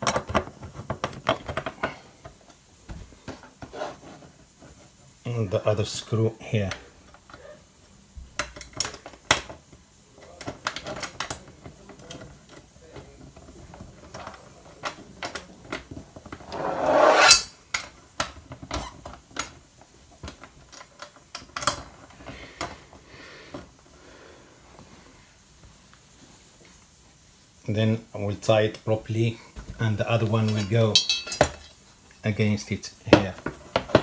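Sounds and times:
rising rasp: 16.4s - 17.5s
metal clicks and clinks: 30.5s - 31.6s.

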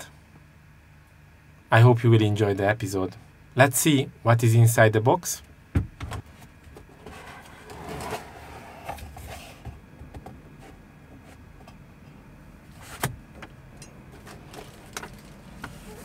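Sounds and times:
cardboard scraping and rustling: 6.3s - 9.8s.

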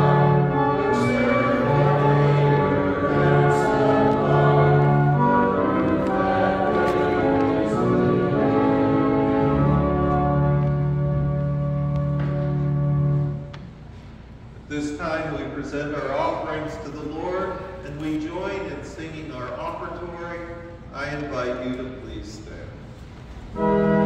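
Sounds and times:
church organ chords: 0.0s - 13.6s, 23.4s - 24.0s.

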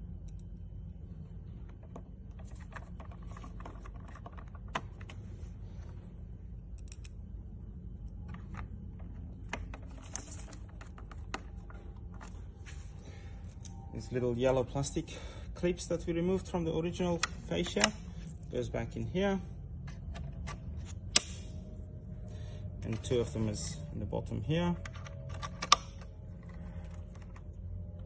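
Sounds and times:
low background rumble: 0.0s - 28.0s
plastic part handled: 1.7s - 5.2s.

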